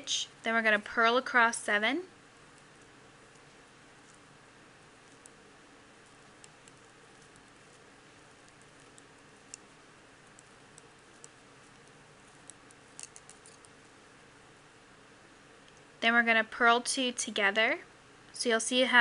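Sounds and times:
low steady hiss: 0:00.0 - 0:19.0
knitting needles clicking: 0:05.0 - 0:05.4, 0:06.1 - 0:07.8, 0:08.4 - 0:13.8.

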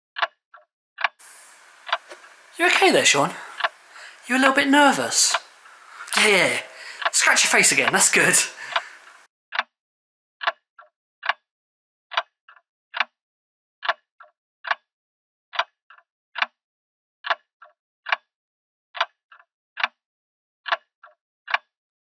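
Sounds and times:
clock ticking: 0:01.2 - 0:09.2.

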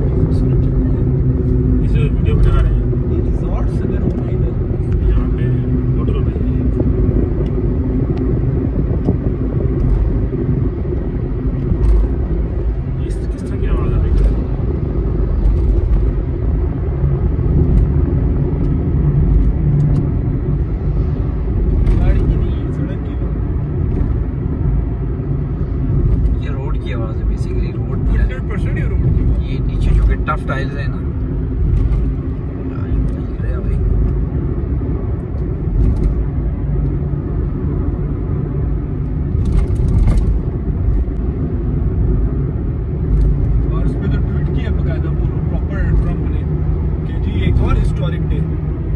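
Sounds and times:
car engine and tyre rumble: 0:00.0 - 0:48.9.

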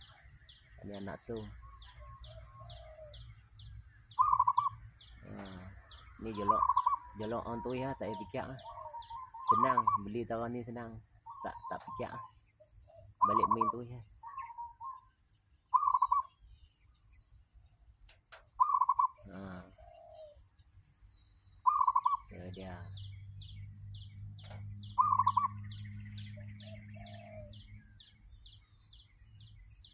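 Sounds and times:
small bird chirping rapidly: 0:00.0 - 0:29.9
dove cooing: 0:01.8 - 0:03.2, 0:04.2 - 0:05.6, 0:06.3 - 0:10.2, 0:11.2 - 0:12.3, 0:12.9 - 0:15.1, 0:15.7 - 0:16.3, 0:18.6 - 0:20.4, 0:21.6 - 0:22.3, 0:24.4 - 0:25.6, 0:26.4 - 0:27.7.

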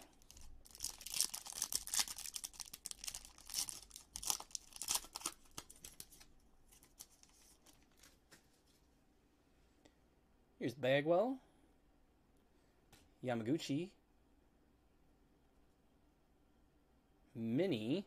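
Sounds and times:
foil wrapper tearing and crinkling: 0:00.0 - 0:08.1.

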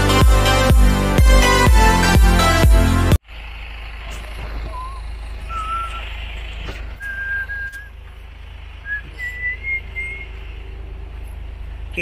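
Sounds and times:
man whistling: 0:04.7 - 0:06.1, 0:07.0 - 0:08.0, 0:08.8 - 0:10.4.

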